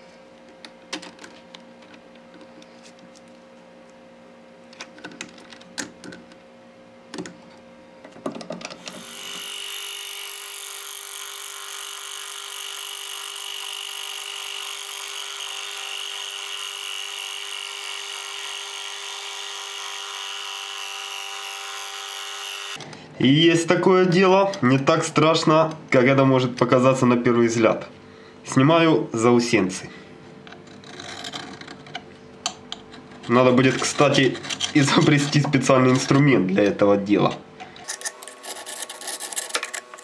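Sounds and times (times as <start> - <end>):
metal lathe whine: 8.9 - 22.8.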